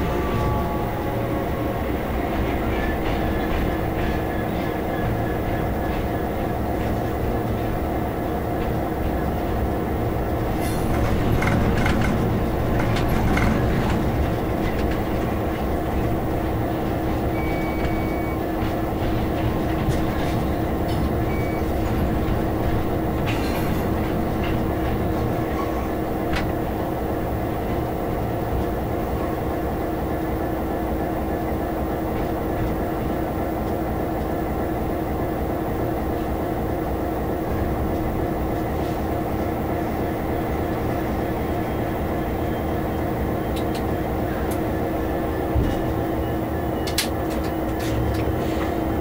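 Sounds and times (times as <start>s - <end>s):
diesel locomotive engine droning: 0.0s - 49.0s.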